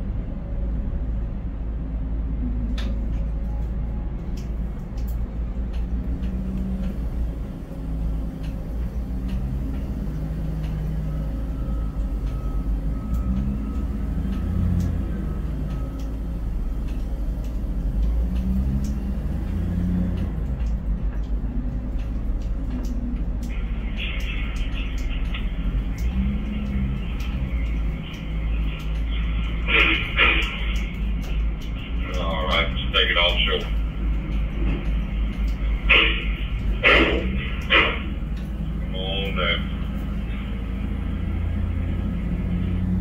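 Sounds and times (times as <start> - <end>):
crane machinery rumbling: 0.0 - 43.0
low motor hum: 0.0 - 43.0.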